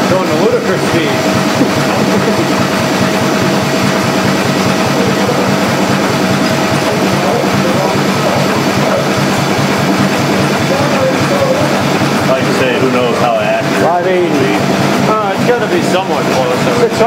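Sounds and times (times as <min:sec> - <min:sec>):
generator hum: 0:00.0 - 0:17.0
stationary engine running fast: 0:00.0 - 0:17.0
thin steady whine: 0:00.0 - 0:17.0.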